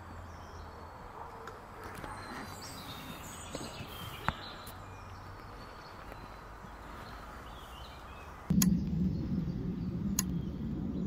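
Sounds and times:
faint birdsong chirps: 0:00.0 - 0:11.0
low background rumble: 0:08.4 - 0:11.0
sharp click: 0:08.5 - 0:08.9.

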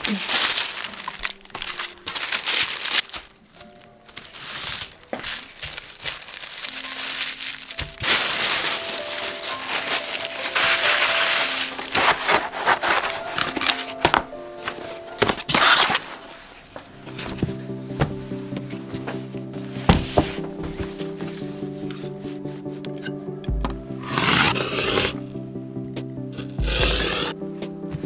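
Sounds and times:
wrapping material crinkling: 0:00.0 - 0:17.6, 0:24.0 - 0:25.3
quiet background music: 0:00.0 - 0:28.0.

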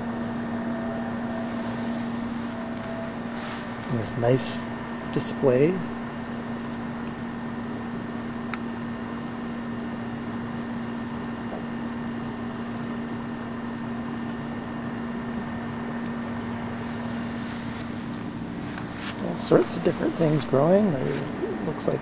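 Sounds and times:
high whine: 0:00.0 - 0:22.0
low mechanical hum: 0:00.0 - 0:22.0.

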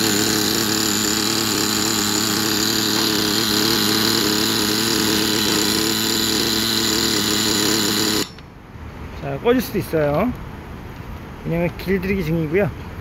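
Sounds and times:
nitro engine idling: 0:00.0 - 0:08.6.

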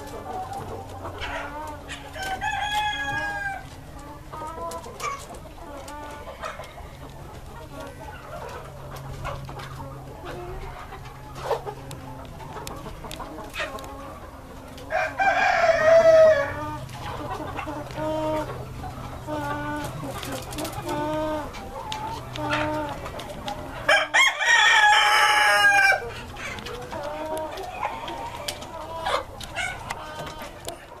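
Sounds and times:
chickens clucking: 0:00.0 - 0:31.0
rooster crowing: 0:02.1 - 0:03.7, 0:14.9 - 0:16.8, 0:23.8 - 0:26.5.

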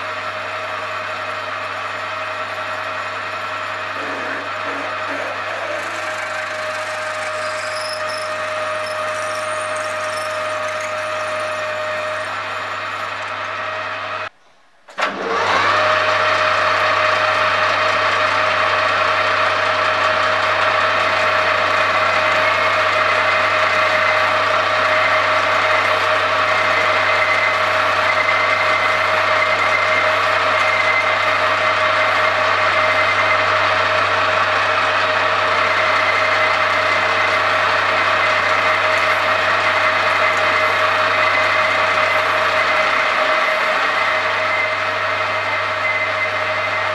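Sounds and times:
metal lathe whining: 0:00.5 - 0:14.3, 0:15.0 - 0:46.9.

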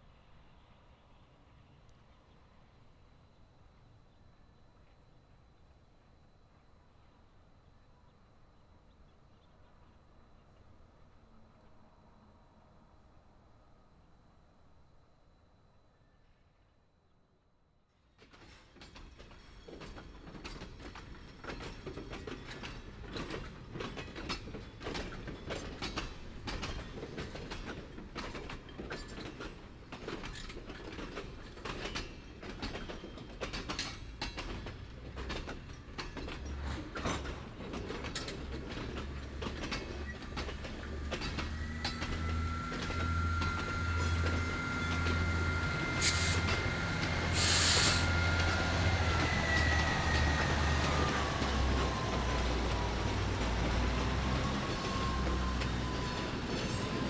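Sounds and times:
train wheels clacking over rail joints: 0:18.2 - 0:57.0
high wheel squeal: 0:41.4 - 0:53.2
short hisses: 0:46.0 - 0:46.6, 0:47.2 - 0:48.2.

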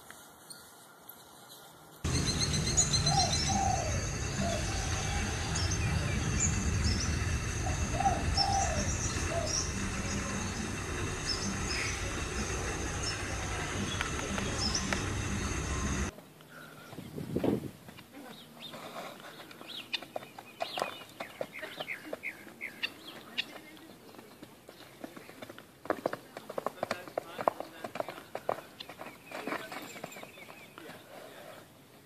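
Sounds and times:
birds chirping: 0:02.0 - 0:31.9
low outdoor rumble: 0:02.1 - 0:16.2
low cooing calls: 0:02.1 - 0:17.2.

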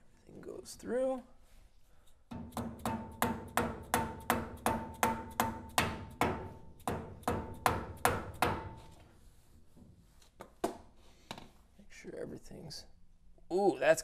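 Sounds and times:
hammer striking steel driver: 0:02.3 - 0:08.9.

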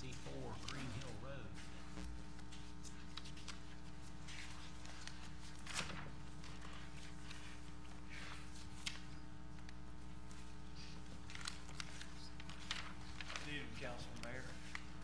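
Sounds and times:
paper rustling: 0:00.0 - 0:15.0
steady electrical hum: 0:00.0 - 0:15.0.

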